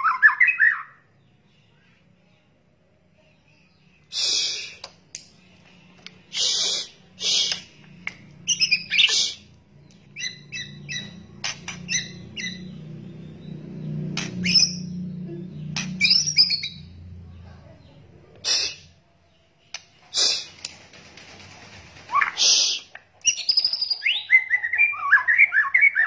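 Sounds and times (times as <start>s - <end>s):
bird harsh rattling calls: 6.2s - 7.8s, 10.2s - 12.9s, 18.4s - 18.9s, 19.7s - 24.6s
sharp clicks: 7.4s - 8.4s, 20.5s - 21.6s.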